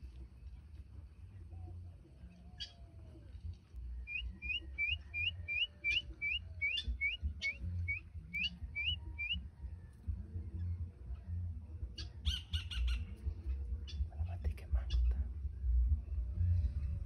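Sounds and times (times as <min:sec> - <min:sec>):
bird whistled notes: 0:04.0 - 0:09.4
sharp bird calls: 0:04.1 - 0:09.4.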